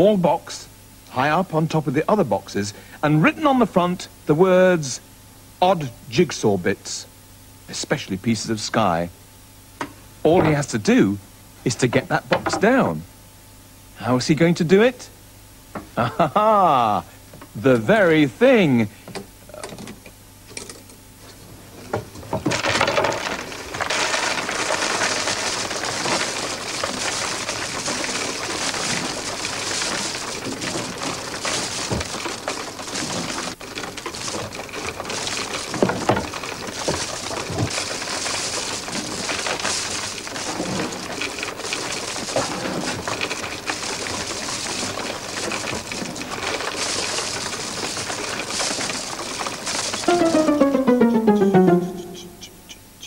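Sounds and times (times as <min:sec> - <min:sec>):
jigsaw pieces pouring and rattling: 0:22.5 - 0:35.8.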